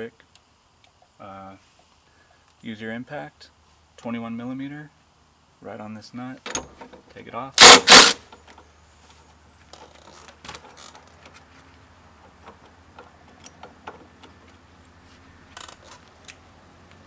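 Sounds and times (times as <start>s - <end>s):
metal parts clicking: 7.6s - 8.6s.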